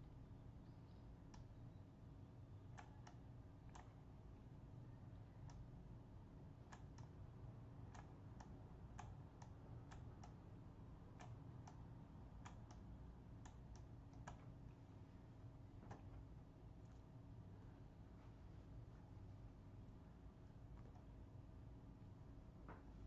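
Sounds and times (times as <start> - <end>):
steady low hum: 0.0 - 23.0
computer mouse clicks: 1.2 - 1.5, 2.7 - 4.1, 5.4 - 5.7, 6.6 - 7.2, 7.8 - 14.8, 15.8 - 17.1, 20.6 - 21.2.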